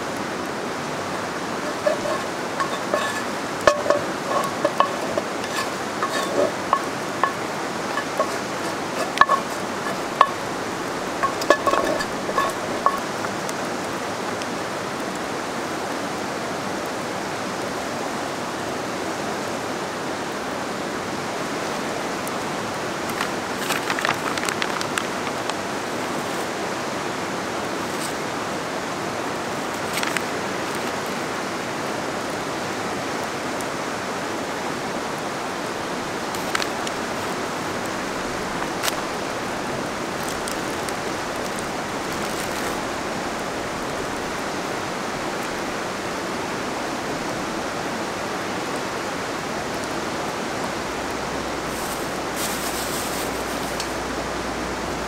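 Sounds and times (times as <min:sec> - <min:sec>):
river rushing: 0:00.0 - 0:55.0
utensils clicking in a pot: 0:01.6 - 0:10.5, 0:11.2 - 0:13.2, 0:29.8 - 0:30.9.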